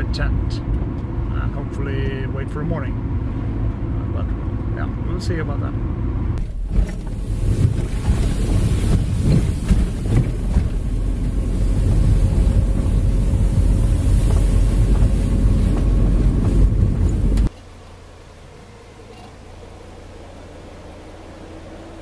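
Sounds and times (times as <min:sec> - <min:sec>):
wind buffeting microphone: 0:06.4 - 0:17.5
car tyres rumbling on gravel: 0:06.4 - 0:17.6.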